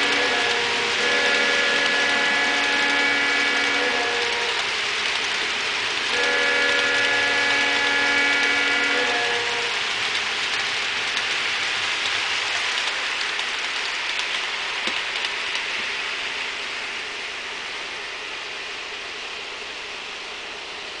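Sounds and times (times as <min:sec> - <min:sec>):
train chime: 0:00.0 - 0:04.6
model train wheels on rail: 0:00.0 - 0:21.0.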